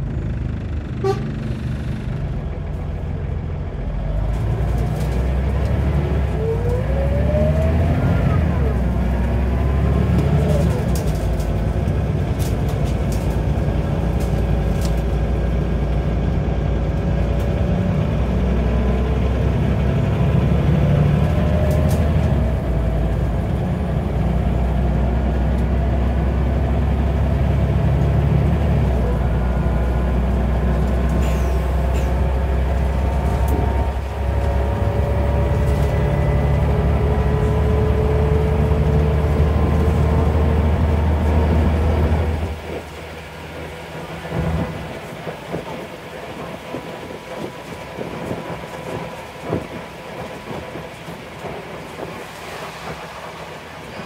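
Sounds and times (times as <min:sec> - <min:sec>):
gearbox whine rising in pitch: 0:00.0 - 0:03.2, 0:05.4 - 0:10.4
bus diesel engine drone: 0:00.0 - 0:54.0.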